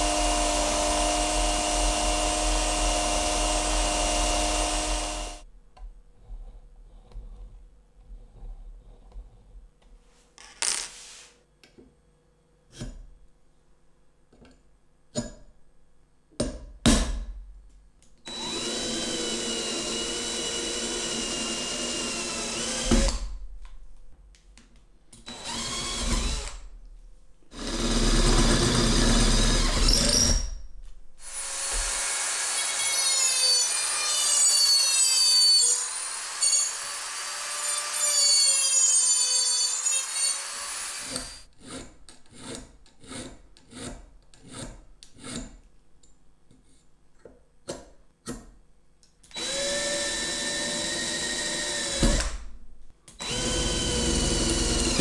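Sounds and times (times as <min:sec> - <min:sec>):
electric drill boring metal: 0:00.0 - 0:05.4, 0:18.3 - 0:23.2, 0:25.3 - 0:26.5, 0:27.6 - 0:30.4, 0:31.3 - 0:41.4, 0:49.3 - 0:52.3, 0:53.2 - 0:55.0
rotary tool high whine: 0:00.0 - 0:05.4, 0:18.3 - 0:22.9.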